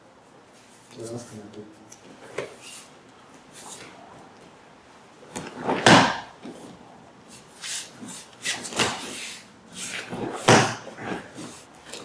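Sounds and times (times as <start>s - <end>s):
body hitting a mat: 5.3s - 6.3s, 10.1s - 11.2s.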